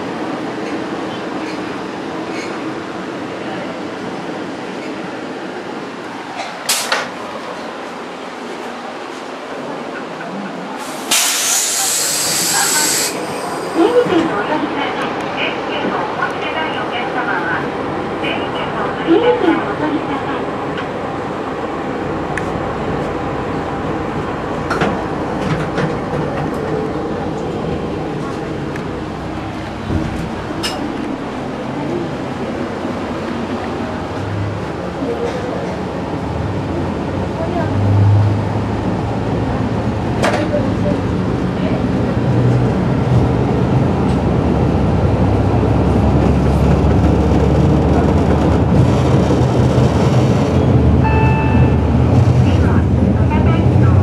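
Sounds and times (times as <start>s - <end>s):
train wheels on track: 0.0s - 18.5s, 19.1s - 54.0s
railcar engine and running rumble: 0.0s - 54.0s
diesel engine hum: 21.9s - 35.3s
short beep: 51.0s - 51.8s.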